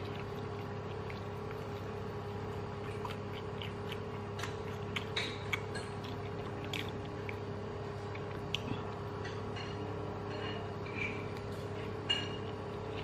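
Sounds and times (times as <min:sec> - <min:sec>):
chewing clicks and smacks: 0:00.0 - 0:09.4
steady low hum: 0:00.0 - 0:13.0.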